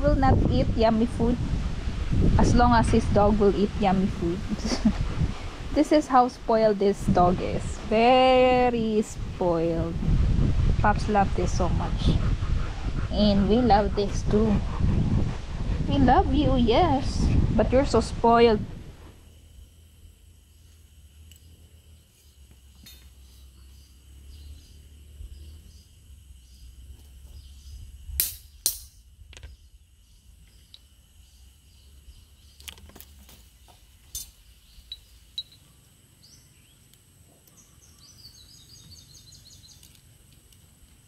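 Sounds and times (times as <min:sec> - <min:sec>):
birds chirping: 0:21.3 - 0:27.9, 0:29.4 - 0:40.0.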